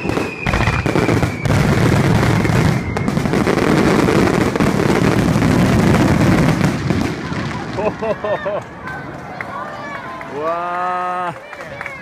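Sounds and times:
fireworks bursting and crackling: 0.0s - 9.3s.

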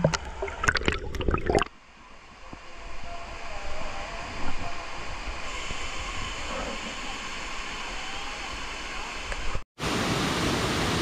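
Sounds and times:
waterfall rushing: 7.0s - 11.0s.

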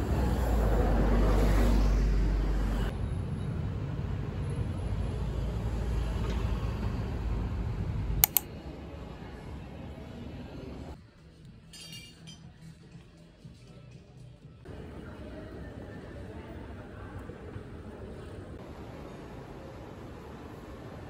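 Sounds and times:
bus rumbling: 0.0s - 8.2s
street traffic hum: 0.0s - 11.0s, 14.3s - 21.0s
sharp clicks: 8.2s - 8.5s
indoor background noise: 8.2s - 21.0s.

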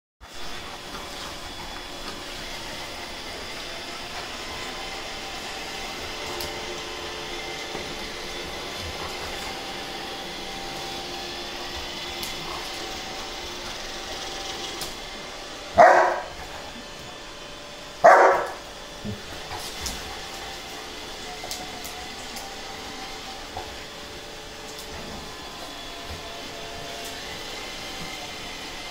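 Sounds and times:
mechanical hum: 0.2s - 28.9s
dog barking: 15.8s - 16.4s, 18.0s - 18.6s.

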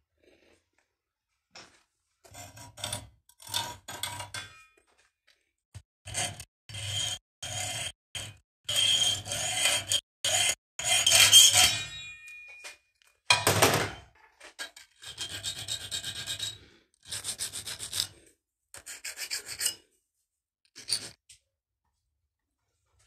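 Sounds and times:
hand sawing and filing metal: 2.2s - 4.6s, 6.1s - 12.2s, 14.6s - 19.9s.

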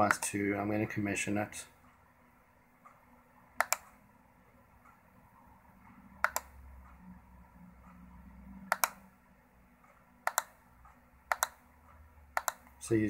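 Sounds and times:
mouse button clicks: 3.6s - 3.9s, 6.2s - 6.5s, 10.3s - 10.6s, 12.4s - 12.7s.

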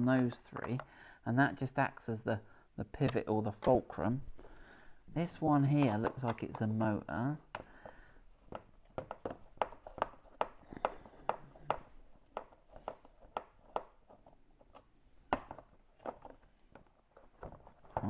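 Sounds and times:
hard plastic clicks and taps: 7.5s - 18.0s.

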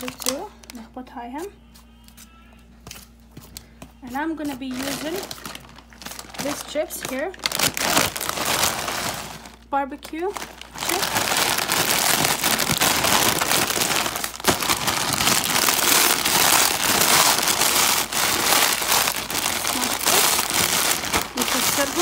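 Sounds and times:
chip bag crinkling: 0.0s - 0.8s, 4.6s - 22.0s
chips crunching: 4.6s - 9.7s, 10.4s - 22.0s.

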